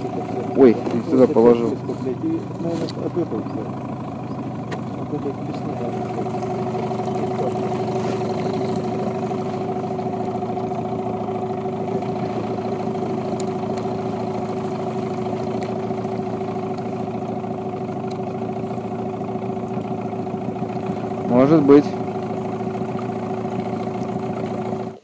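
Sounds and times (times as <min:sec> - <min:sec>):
outboard motor running: 0:00.0 - 0:25.0
faint clicks: 0:17.9 - 0:18.4.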